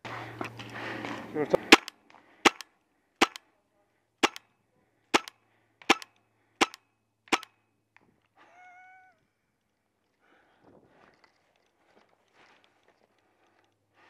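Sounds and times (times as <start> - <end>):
paintball marker shots popping: 1.6 - 3.4, 4.2 - 4.4, 5.1 - 7.6.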